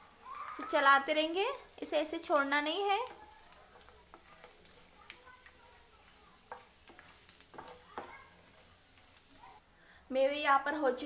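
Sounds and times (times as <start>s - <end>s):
nuts sizzling in hot ghee: 0.0s - 11.0s
wooden spoon clicking against pan: 6.5s - 8.1s.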